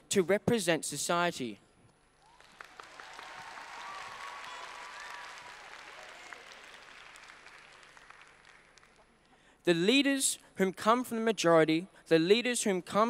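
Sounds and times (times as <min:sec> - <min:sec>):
audience applauding: 0:02.2 - 0:09.2.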